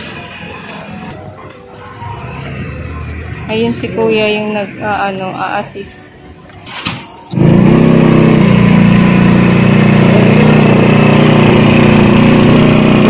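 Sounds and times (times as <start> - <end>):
scooter engine idling: 7.2 - 13.0.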